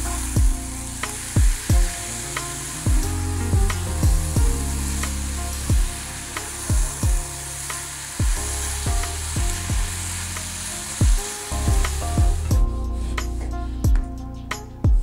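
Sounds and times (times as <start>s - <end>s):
meat and onions sizzling: 0.0s - 13.3s
background music: 0.0s - 15.0s
deep drum hits: 0.4s - 0.6s, 1.4s - 2.0s, 2.9s - 4.7s, 5.7s - 6.0s, 6.7s - 7.3s, 8.2s - 9.9s, 11.0s - 12.8s, 13.9s - 14.2s.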